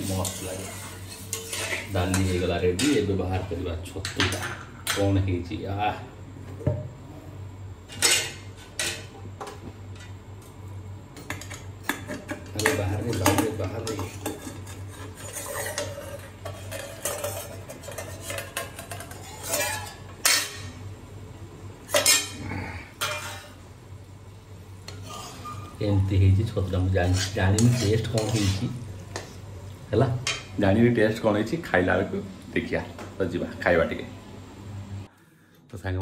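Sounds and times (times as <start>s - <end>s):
metal spatula scraping iron pan: 0.0s - 3.2s, 12.6s - 20.7s, 23.0s - 23.6s, 24.9s - 26.0s, 26.7s - 29.3s.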